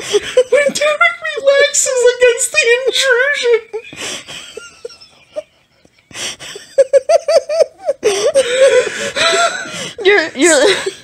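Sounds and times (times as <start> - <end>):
man laughing: 3.7 - 9.8.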